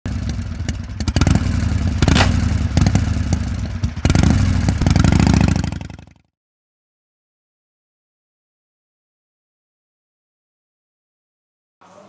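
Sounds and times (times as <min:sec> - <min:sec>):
motorcycle engine revving: 0:00.0 - 0:06.3.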